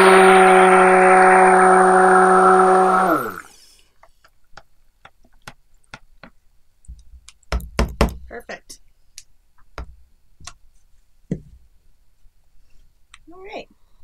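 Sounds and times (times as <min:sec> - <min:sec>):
stick blender motor hum: 0:00.0 - 0:03.6.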